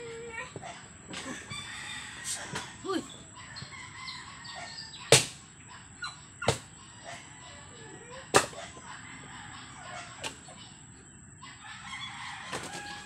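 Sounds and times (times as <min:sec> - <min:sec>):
axe chopping into a log: 0:05.1 - 0:05.4, 0:08.3 - 0:08.6.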